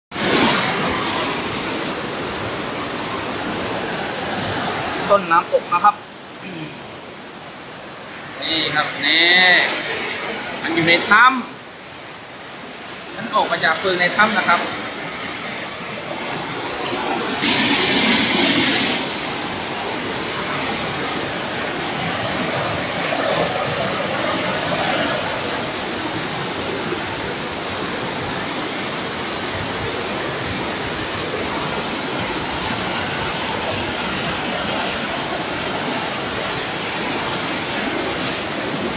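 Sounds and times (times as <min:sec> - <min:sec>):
waterfall rushing over rocks: 0:00.1 - 0:38.9
loud hiss: 0:17.4 - 0:19.6.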